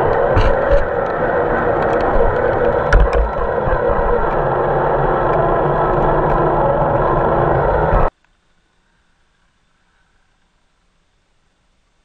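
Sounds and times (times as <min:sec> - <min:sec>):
rc truck electric drivetrain running: 0:00.0 - 0:08.1.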